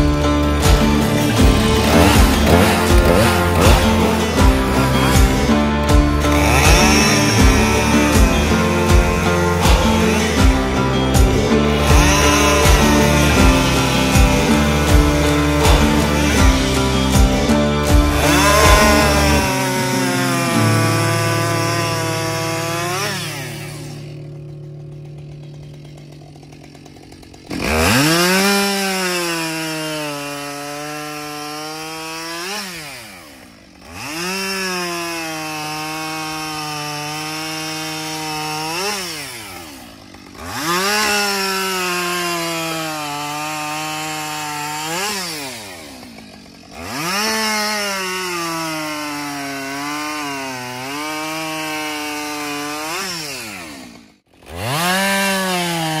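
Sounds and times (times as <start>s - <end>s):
chainsaw cutting logs: 0.0s - 56.0s.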